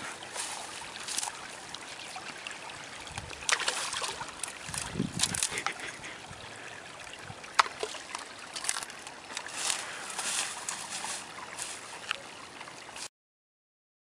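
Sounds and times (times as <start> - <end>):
footsteps in dry grass: 0.0 - 1.4, 8.6 - 12.2
steady outdoor hiss: 0.0 - 13.1.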